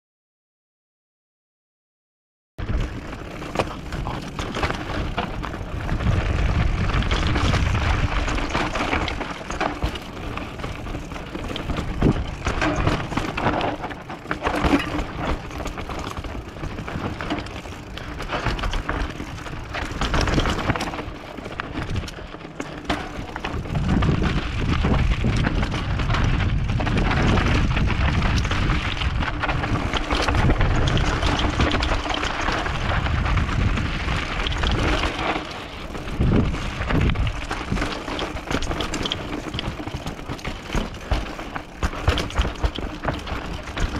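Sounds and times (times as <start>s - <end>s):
bike rattling over bumps: 2.6s - 43.9s
tyres crunching over gravel: 2.6s - 43.9s
wind rumbling on microphone: 2.6s - 43.9s.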